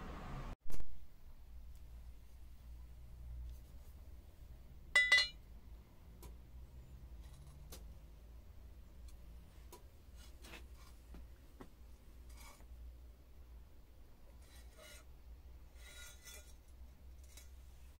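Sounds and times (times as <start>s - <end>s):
low steady hum: 0.0s - 18.0s
metal scraping against metal: 12.2s - 12.7s, 14.3s - 17.9s.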